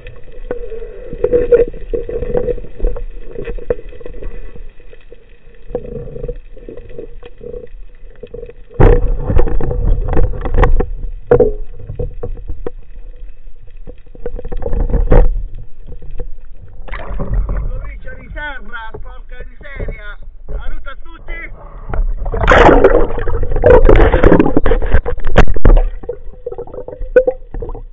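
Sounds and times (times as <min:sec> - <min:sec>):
underwater water rushing: 0:00.0 - 0:18.4, 0:19.8 - 0:27.9
knocks and clicks from handling fish: 0:08.7 - 0:12.8.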